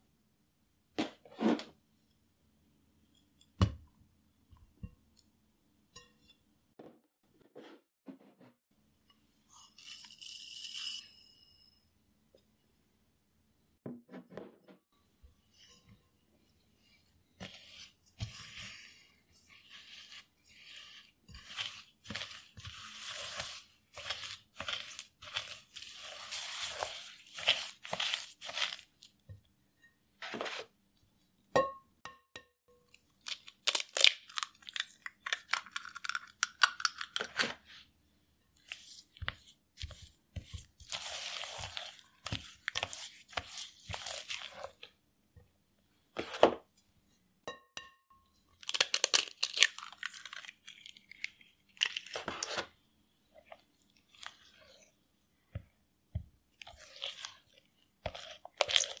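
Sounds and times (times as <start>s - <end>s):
spatula scraping glass bowl: 15.5s - 29.0s, 30.2s - 30.7s, 38.6s - 44.9s, 53.4s - 55.6s, 56.6s - 59.0s
egg cracking: 32.9s - 37.6s, 48.6s - 52.3s.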